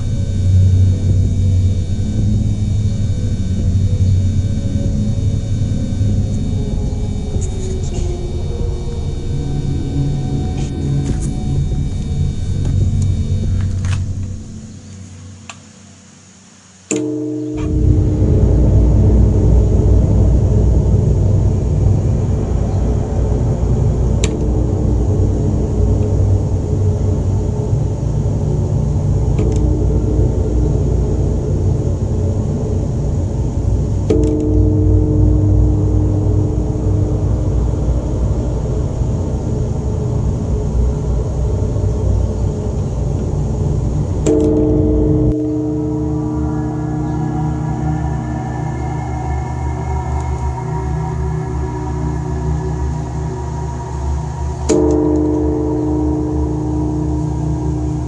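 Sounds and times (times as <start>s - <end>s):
large temple bell ringing: 0.0s - 14.7s, 16.9s - 27.5s, 29.2s - 58.0s
deep cave rumble: 0.0s - 14.9s, 17.6s - 58.0s
sharp click: 16.9s - 17.8s, 29.4s - 29.7s, 34.1s - 34.6s.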